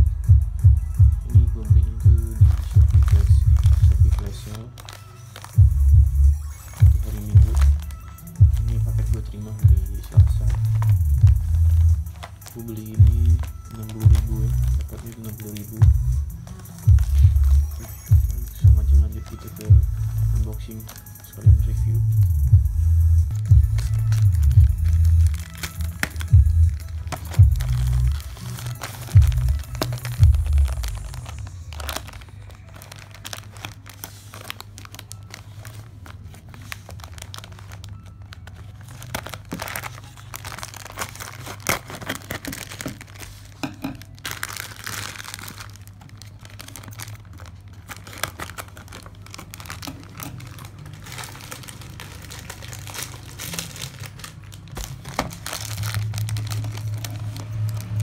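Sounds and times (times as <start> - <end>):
plastic bag crinkling: 1.4 - 58.0.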